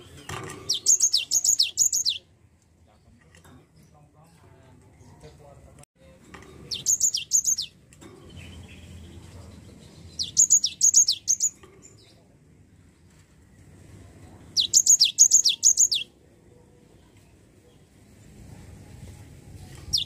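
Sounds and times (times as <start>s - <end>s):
bird singing whistled notes: 0.7s - 2.3s, 6.7s - 12.0s, 14.6s - 16.1s.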